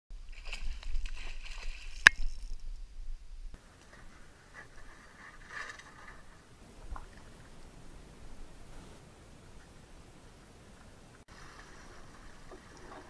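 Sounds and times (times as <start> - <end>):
faint rustling: 0.2 - 13.0
knocks and scrapes in plastic boat: 3.8 - 7.4, 11.3 - 13.0.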